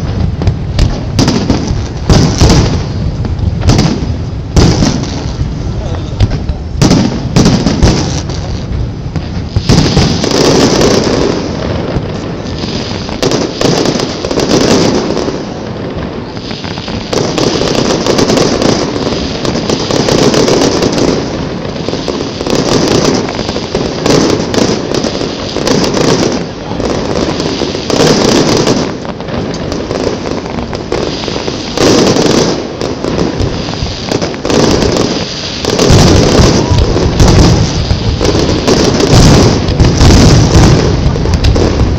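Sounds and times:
fireworks bursting: 0.0 - 41.9.

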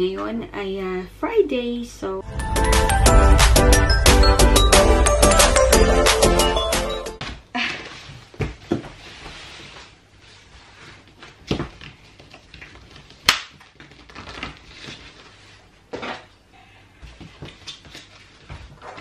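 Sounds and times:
sharp crack: 13.3 - 13.6.

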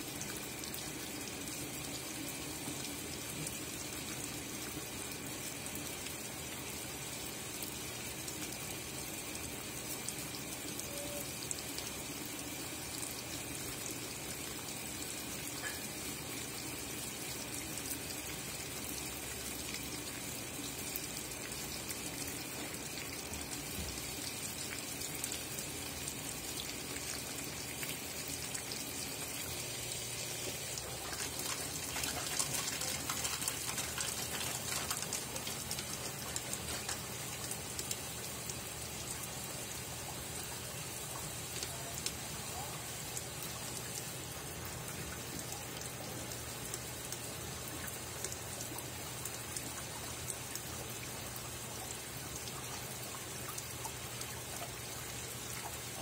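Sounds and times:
water pouring into washing machine: 0.0 - 42.2
water splashing onto wet clothes: 30.6 - 38.0.

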